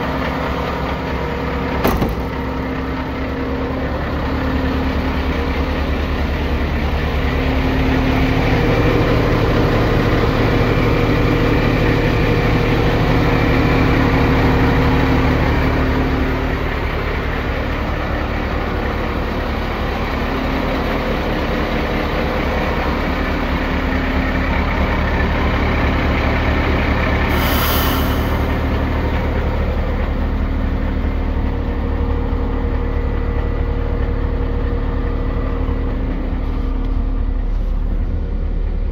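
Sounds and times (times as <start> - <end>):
truck diesel engine idling: 0.0 - 38.9
brief hiss: 27.3 - 28.8.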